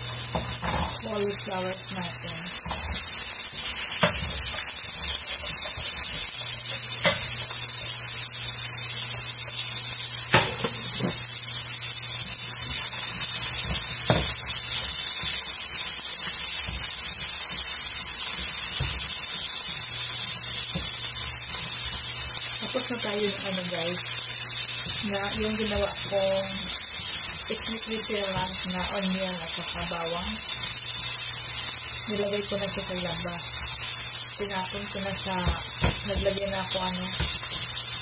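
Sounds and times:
cauliflower sizzling in a pan: 0.0 - 38.0
spatula tapping a pan: 2.6 - 3.1, 3.9 - 5.9, 6.9 - 7.5, 10.3 - 11.2, 13.6 - 14.5, 18.4 - 19.1, 35.3 - 36.4, 37.1 - 37.6.

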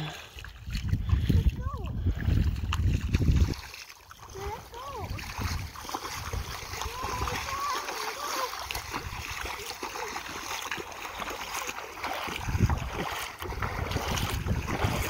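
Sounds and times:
water splashing around wading feet: 0.0 - 15.0
wind buffeting the microphone: 0.4 - 7.6, 12.2 - 15.0.

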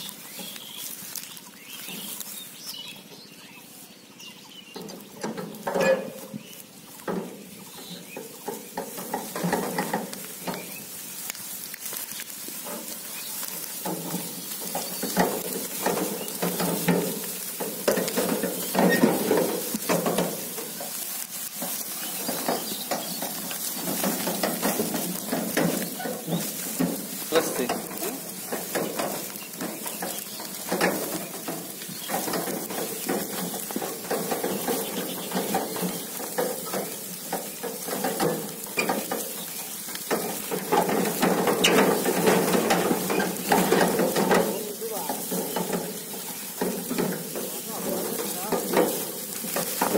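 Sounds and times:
straw crunching underfoot: 0.0 - 49.9
machine knocking and rattling: 7.1 - 10.7, 13.7 - 49.9.

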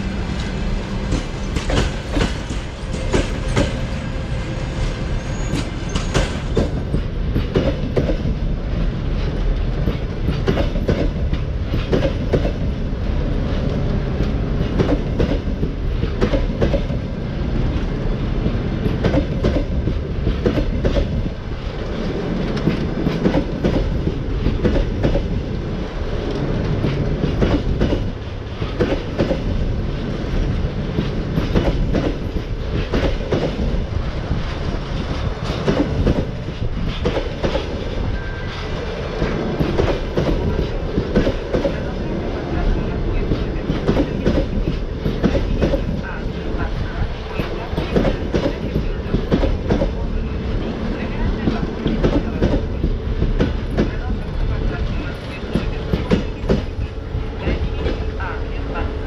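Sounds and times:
low train rumble: 0.0 - 59.0
train wheels clattering over rail joints: 0.4 - 4.0, 5.5 - 12.8, 13.4 - 17.1, 18.4 - 21.4, 22.0 - 25.4, 26.3 - 29.6, 30.8 - 37.9.

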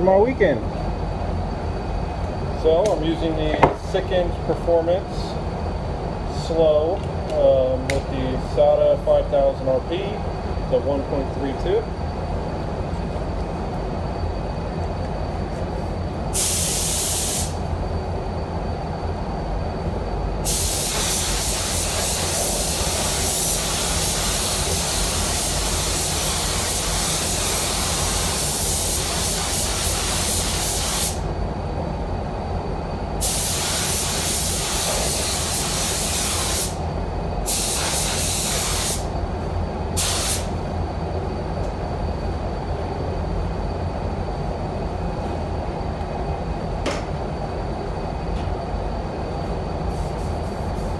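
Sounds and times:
steady low rumble: 0.0 - 16.8, 17.5 - 20.5, 31.2 - 33.3, 36.4 - 38.2, 38.8 - 50.9
spray gun air hiss: 16.3 - 17.7, 20.4 - 31.3, 33.2 - 36.8, 37.4 - 40.6, 49.9 - 50.9.

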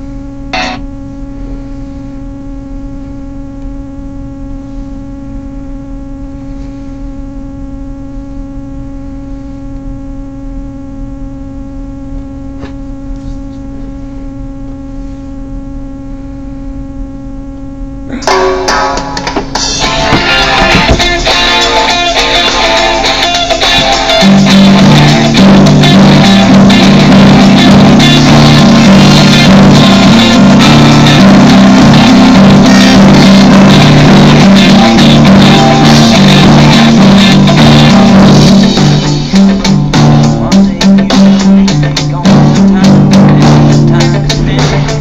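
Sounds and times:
steady humming drone: 0.0 - 45.0
rock music with guitars: 0.5 - 0.8, 18.3 - 45.0.

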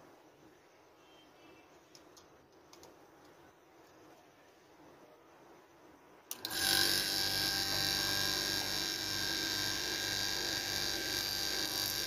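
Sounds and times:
compressor humming: 6.3 - 12.0.

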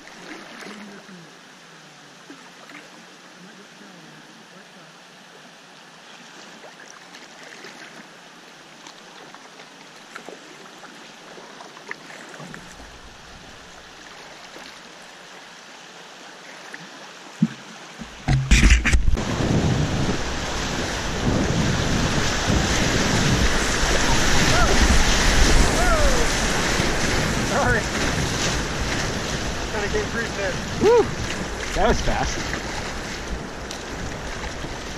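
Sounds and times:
small splashes: 0.0 - 1.3, 2.2 - 3.9, 6.0 - 8.1, 8.8 - 15.4, 16.2 - 19.2, 21.8 - 34.9
river water hissing: 0.0 - 34.9
whitewater rapids rushing: 17.4 - 34.9.

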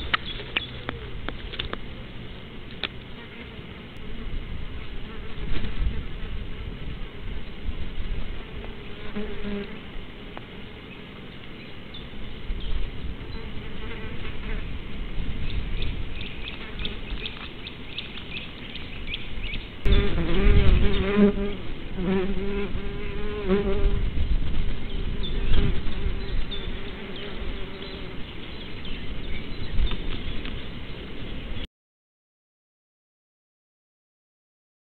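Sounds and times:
insect buzzing: 8.0 - 11.0, 16.2 - 24.1, 25.0 - 28.3.

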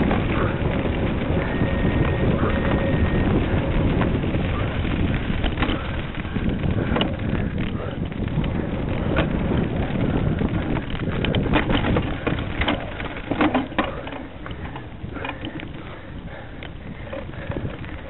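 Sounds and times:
wind buffeting microphone: 0.0 - 18.0
sharp clicks and knocks: 5.3 - 9.4, 10.4 - 15.8.

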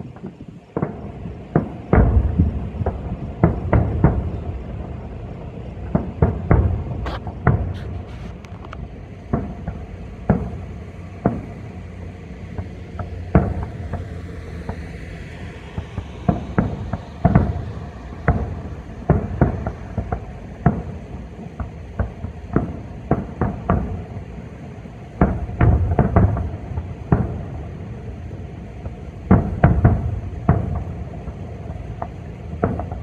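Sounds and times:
firework shells bursting: 0.0 - 14.9, 15.5 - 33.0.

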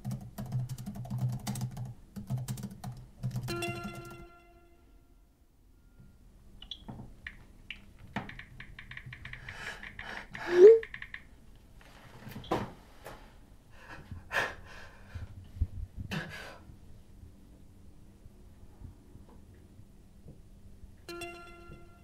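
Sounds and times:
keyboard typing clicks: 0.0 - 4.2, 6.6 - 11.3
breaths: 9.4 - 10.8, 13.7 - 15.4.

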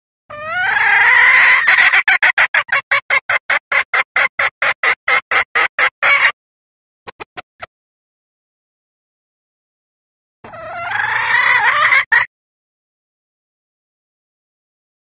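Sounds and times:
junglefowl hen calling: 0.3 - 6.4, 10.4 - 12.3.

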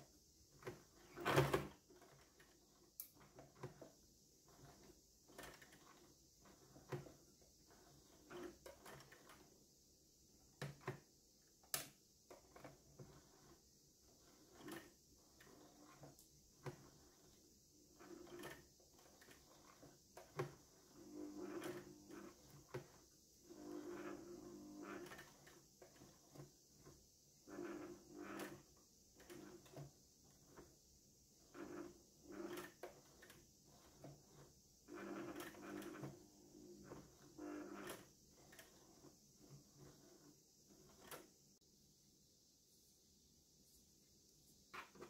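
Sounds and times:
sewing machine needle clicking: 11.7 - 13.2.

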